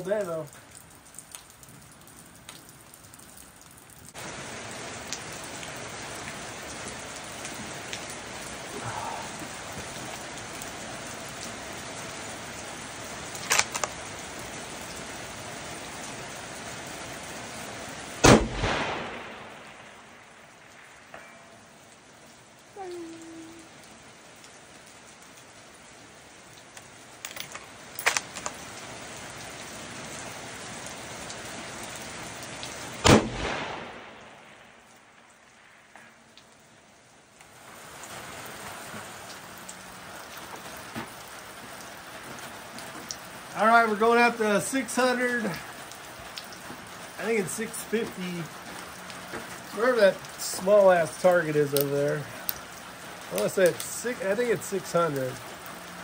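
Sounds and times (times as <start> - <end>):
steady hiss: 4.1 - 24.5, 31.5 - 56.0
rifle shot with echo: 18.2 - 20.1, 33.0 - 34.8.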